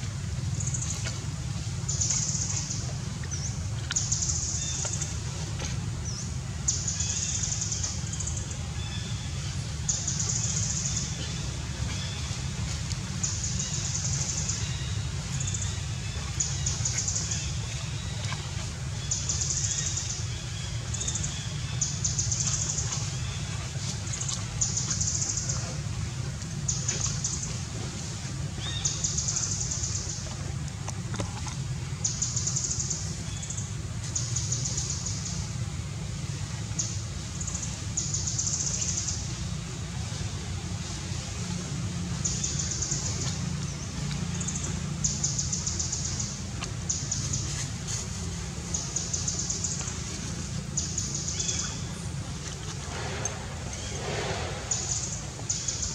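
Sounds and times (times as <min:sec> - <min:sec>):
steady low rumble: 0:00.0 - 0:55.9
low rumble: 0:38.9 - 0:55.9.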